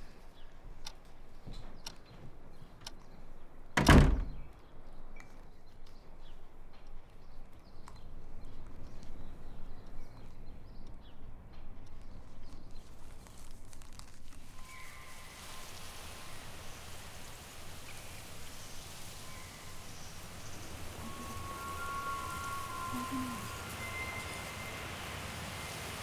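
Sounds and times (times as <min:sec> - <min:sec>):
steady hiss: 0:12.7 - 0:26.0
brief thin tones: 0:20.4 - 0:25.9.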